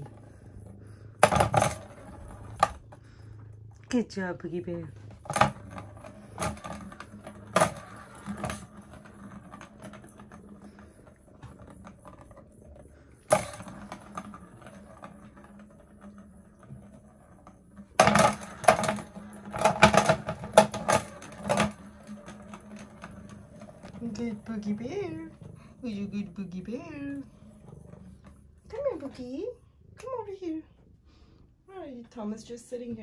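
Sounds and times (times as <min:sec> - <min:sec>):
plastic cat toy clattering: 0:00.0 - 0:03.0, 0:05.0 - 0:28.4.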